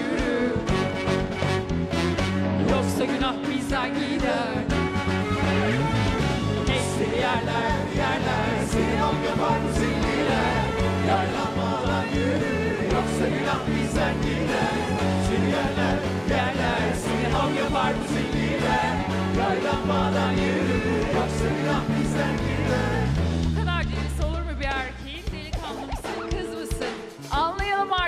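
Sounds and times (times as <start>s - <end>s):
woman singing lead vocal: 0.0s - 0.8s
backing singers: 0.0s - 1.4s, 2.6s - 25.1s
keyboards: 0.0s - 28.0s
pop band playing: 0.0s - 28.0s
bass drums beating: 0.2s - 28.0s.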